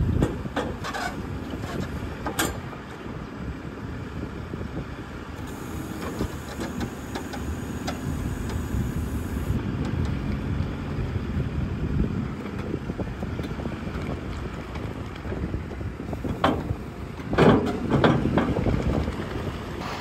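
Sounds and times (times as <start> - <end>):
diesel loader engine droning: 0.0 - 20.0.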